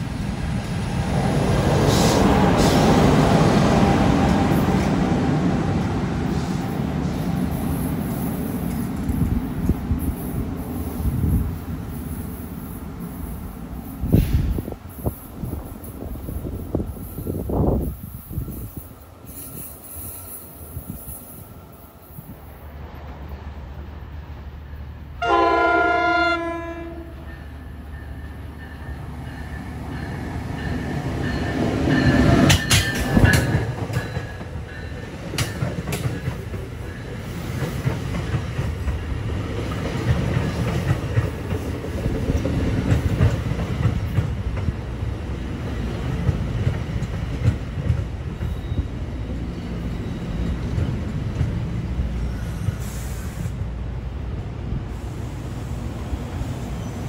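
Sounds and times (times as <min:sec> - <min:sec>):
train wheels clickety-clack: 0:01.4 - 0:11.5, 0:27.3 - 0:53.5
train horn blast: 0:25.2 - 0:27.3.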